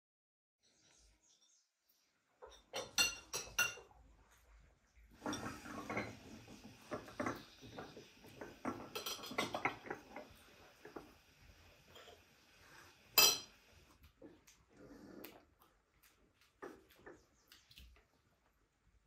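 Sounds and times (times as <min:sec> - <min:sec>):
plates and cutlery clicking: 0:02.4 - 0:03.9, 0:05.2 - 0:11.1, 0:13.1 - 0:13.6
tableware clinking: 0:02.4 - 0:03.9, 0:05.2 - 0:10.3, 0:13.1 - 0:13.6.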